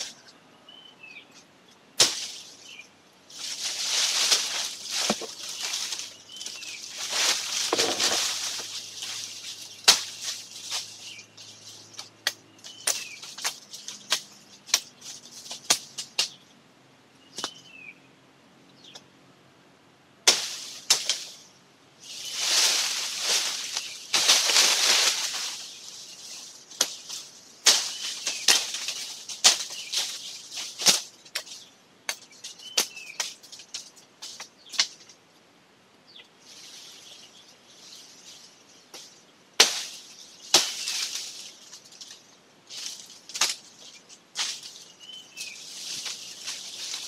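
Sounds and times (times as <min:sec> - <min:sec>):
leafy branches rustling: 0:00.0 - 0:16.4, 0:20.2 - 0:35.5, 0:36.1 - 0:47.0
pruning shears snapping branches: 0:02.0 - 0:16.4, 0:20.2 - 0:21.4, 0:22.3 - 0:35.1, 0:38.9 - 0:47.0.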